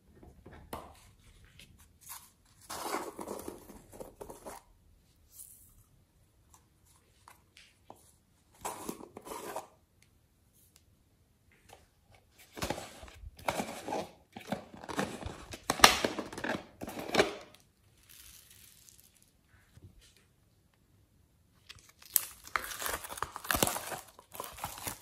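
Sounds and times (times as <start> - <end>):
foam beads crunching in plastic jar: 16.8 - 19.3, 21.9 - 25.0.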